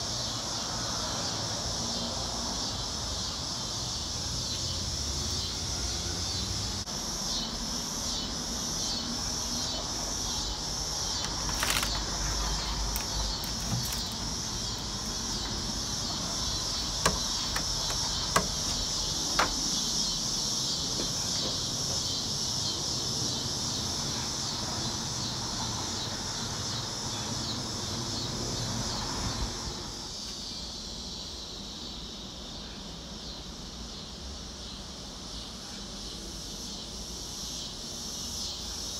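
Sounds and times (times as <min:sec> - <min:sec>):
insect chorus drone: 0:00.0 - 0:38.9
sharp taps and clicks: 0:17.0 - 0:19.6.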